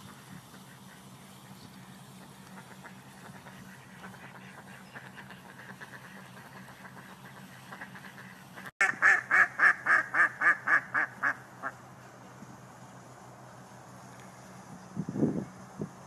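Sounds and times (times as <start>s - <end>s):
ducks quacking: 0.0s - 11.8s.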